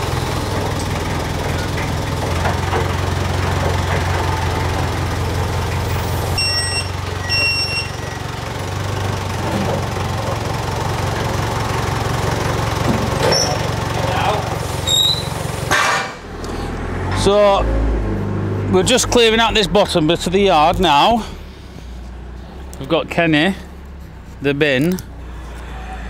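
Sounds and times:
engine idling: 0.0s - 17.6s
high electronic beeps: 6.4s - 8.2s.

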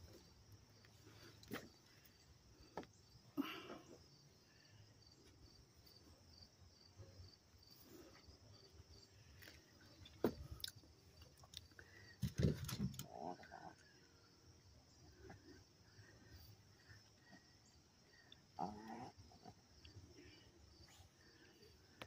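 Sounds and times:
insects chirping: 0.0s - 22.0s.

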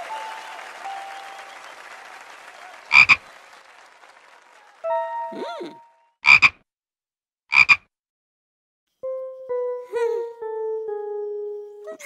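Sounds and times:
frog croaking: 2.9s - 3.2s, 6.2s - 6.6s, 7.5s - 7.9s.

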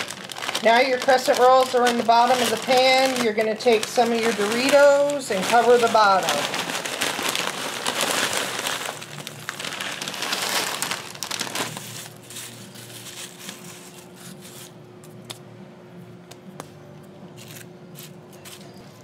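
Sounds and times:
chip crumbs clicking in foil pan: 0.0s - 6.3s
chip bag crinkling: 0.0s - 14.7s.

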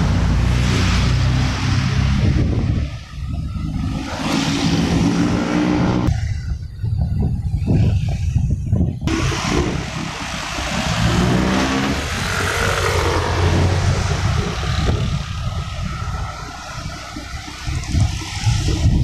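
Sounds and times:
motorcycle engine running: 0.0s - 19.0s
wind rushing over microphone: 0.0s - 19.0s.

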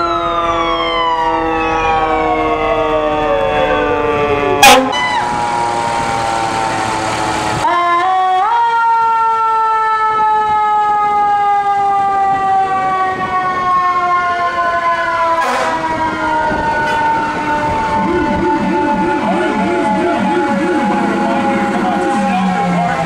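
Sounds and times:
fire truck siren wailing: 0.0s - 23.0s
siren warbling up and down: 0.0s - 23.0s.

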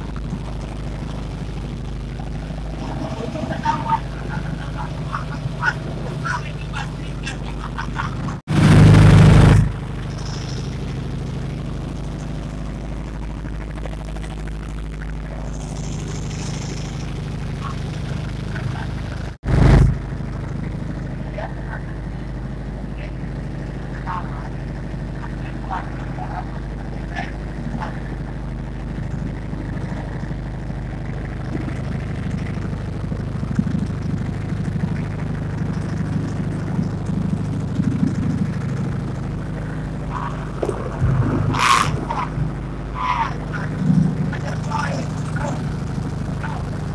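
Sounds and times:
loud rushing noise: 0.0s - 11.7s, 38.6s - 45.9s
boat engine drone: 0.0s - 46.9s.

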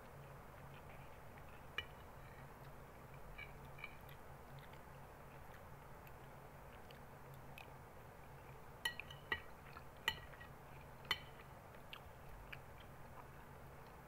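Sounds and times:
metal spoon clinking against bowl: 8.8s - 11.4s.

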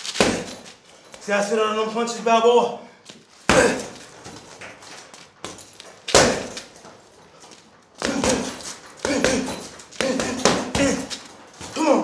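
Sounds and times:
punches hitting heavy bag: 0.0s - 0.7s, 3.5s - 4.3s, 5.4s - 6.8s, 8.0s - 12.0s.

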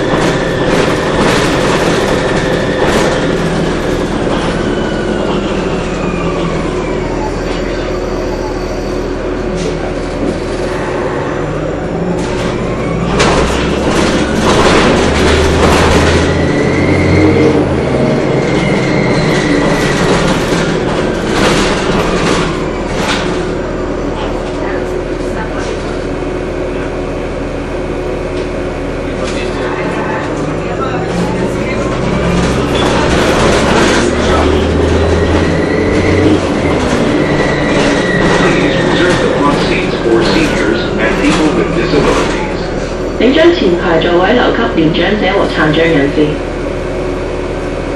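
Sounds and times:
bus body clattering: 0.0s - 5.4s, 12.1s - 23.7s, 29.1s - 43.5s
bus running rumble: 0.0s - 47.9s.

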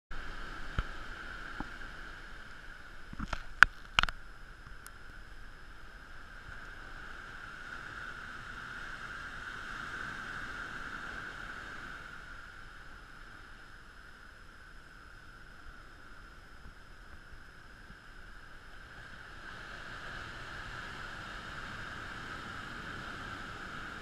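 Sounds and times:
surf breaking on beach: 18.4s - 24.0s.

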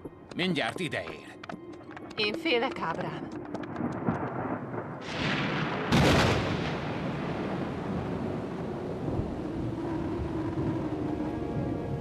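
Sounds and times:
thunder crack and rumble: 2.9s - 12.0s.

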